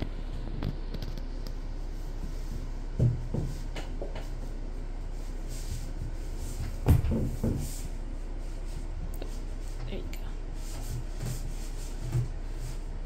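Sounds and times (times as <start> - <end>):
kitten thumping on floor: 6.6 - 7.8.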